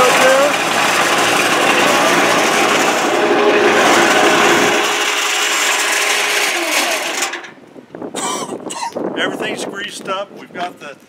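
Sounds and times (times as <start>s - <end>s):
electric cement mixer running: 0.0s - 7.6s.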